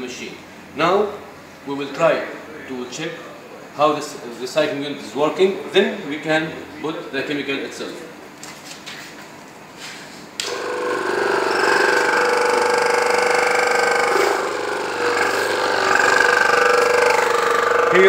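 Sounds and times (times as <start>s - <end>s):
electric pump motor whining: 10.4s - 18.0s.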